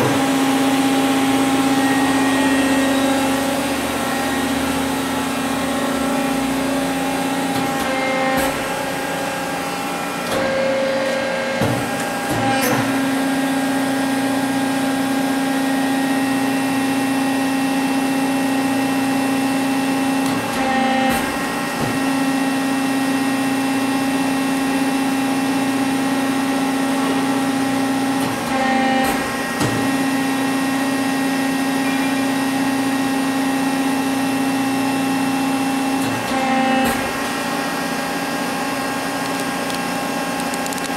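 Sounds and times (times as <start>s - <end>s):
hydraulic pump humming: 0.0s - 40.9s.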